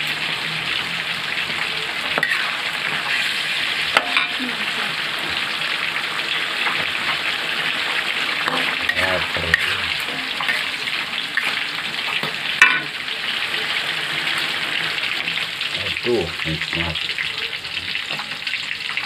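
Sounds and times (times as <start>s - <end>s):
food sizzling in a wok: 0.0s - 19.0s
metal spatula scraping wok: 2.0s - 4.4s, 7.9s - 12.9s
spatula knocking wok: 3.9s - 4.4s, 8.4s - 11.5s, 12.1s - 13.0s.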